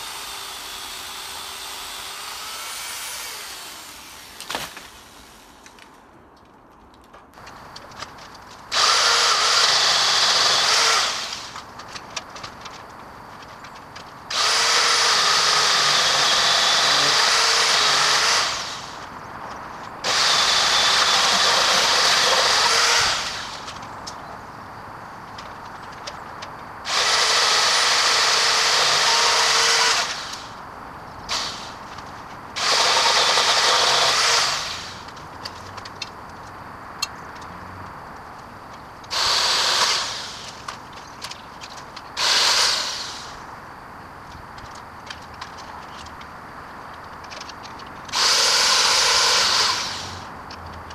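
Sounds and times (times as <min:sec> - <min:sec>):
electric pole saw whining: 0:00.0 - 0:05.8, 0:08.7 - 0:11.6, 0:14.3 - 0:19.1, 0:20.0 - 0:23.7, 0:26.8 - 0:30.6, 0:32.6 - 0:35.1, 0:39.1 - 0:40.6, 0:42.2 - 0:43.4, 0:48.1 - 0:50.3.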